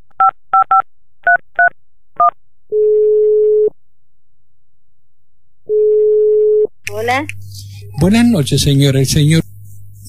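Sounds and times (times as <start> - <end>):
telephone ringback tone: 5.7 - 6.7.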